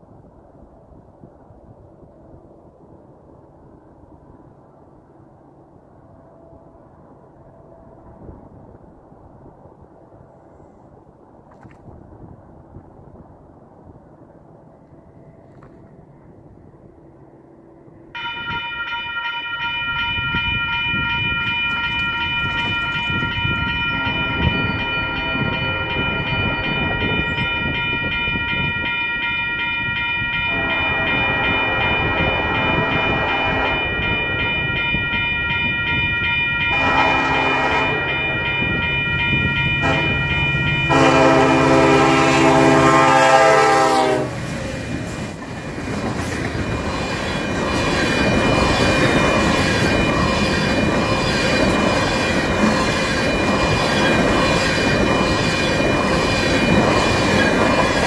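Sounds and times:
crossing bell ringing: 18.1s - 45.1s, 46.4s - 58.0s
train horn blasts: 30.4s - 34.1s, 36.6s - 44.5s
train wheels clattering: 36.7s - 58.0s.

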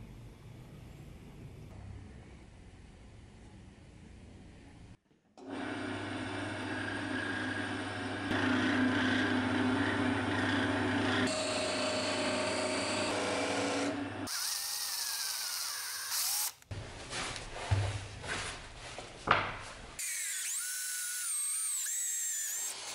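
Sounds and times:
wood lathe motor hum: 5.4s - 16.6s.

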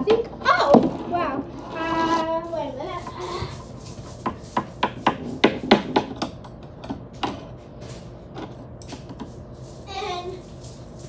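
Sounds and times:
child running footsteps on hard floor: 2.5s - 6.1s, 8.8s - 11.0s.

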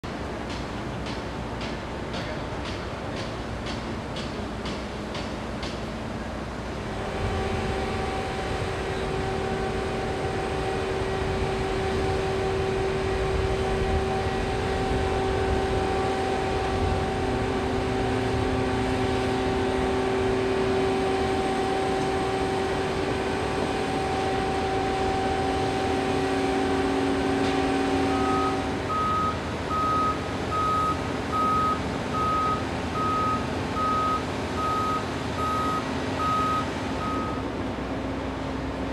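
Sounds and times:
crane rumble: 0.0s - 38.9s
crane whine: 0.1s - 38.9s
backup alarm beeping: 28.1s - 37.4s.

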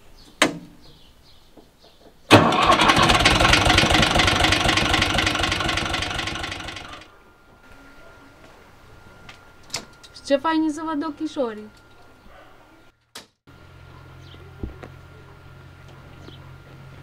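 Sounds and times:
tractor diesel engine running: 2.3s - 7.1s.

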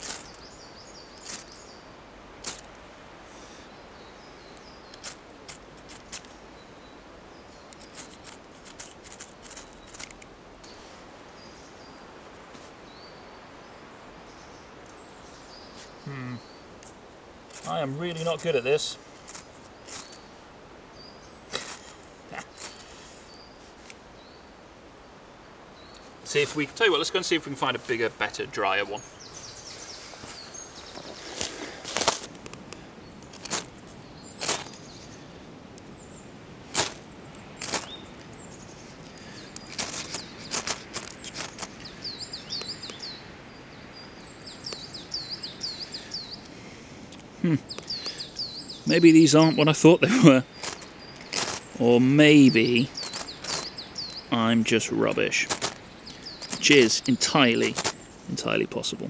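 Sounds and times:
small bird chirping: 0.0s - 2.7s, 3.6s - 12.0s, 17.5s - 20.4s, 35.9s - 46.5s, 47.1s - 58.6s.

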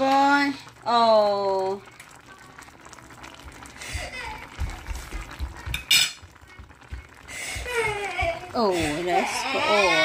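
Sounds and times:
utensils clinking against pot: 5.6s - 6.4s.

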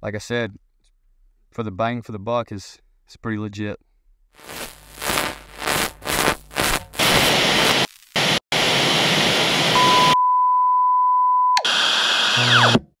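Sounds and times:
loud tv static: 4.4s - 10.2s, 11.7s - 12.8s
test-tone beep: 9.8s - 11.6s.

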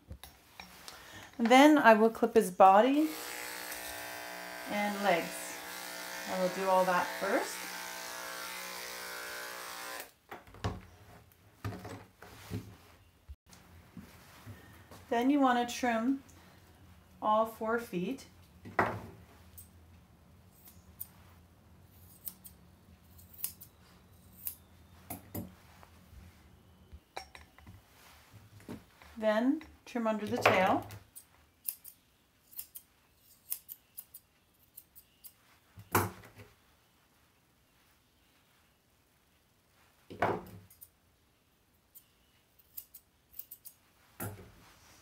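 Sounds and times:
shears snipping hair: 2.9s - 10.2s, 20.5s - 24.6s, 30.5s - 35.4s, 41.9s - 43.8s
scissors snipping hair: 21.9s - 23.7s, 24.3s - 24.6s, 31.1s - 35.4s, 41.9s - 43.8s.

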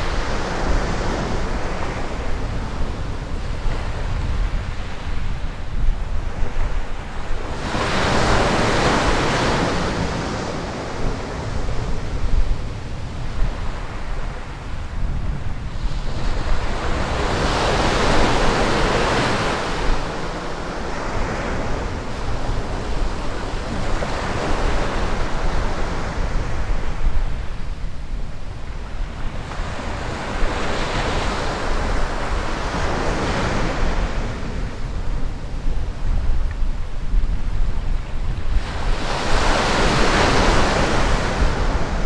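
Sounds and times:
wind rumble on microphone: 0.0s - 42.0s
small waves breaking on beach: 37.7s - 42.0s.

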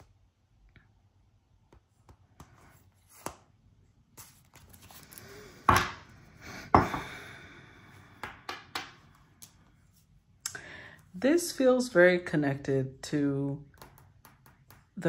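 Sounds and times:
deck knocking on wooden table: 6.8s - 7.1s.

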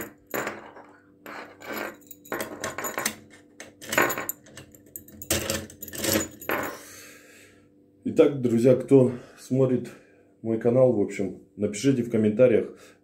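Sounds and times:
keys jangling on a ring: 1.5s - 3.2s, 3.8s - 6.8s.

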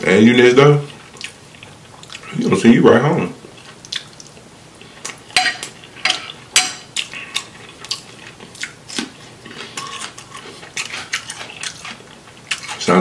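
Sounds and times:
fork clinking on ceramic dish: 5.4s - 6.9s.

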